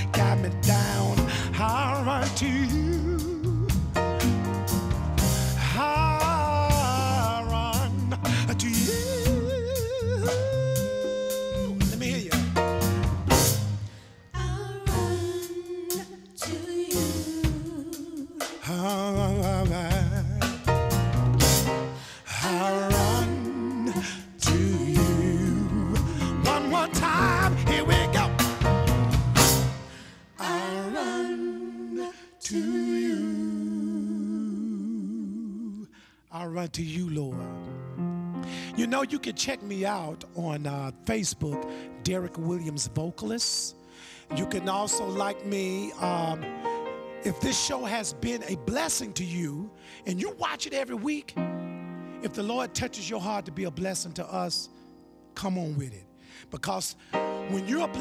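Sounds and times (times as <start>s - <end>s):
person singing with vibrato: 0.0s - 4.0s, 5.6s - 12.4s, 14.3s - 20.6s, 22.0s - 28.6s, 30.0s - 36.2s
drum kit: 0.0s - 13.9s, 14.9s - 30.0s
electric bass: 0.0s - 15.3s, 19.1s - 22.0s, 22.9s - 30.1s
piano: 0.0s - 36.0s, 36.9s - 58.0s
voices singing long notes: 22.4s - 28.7s, 30.4s - 35.9s.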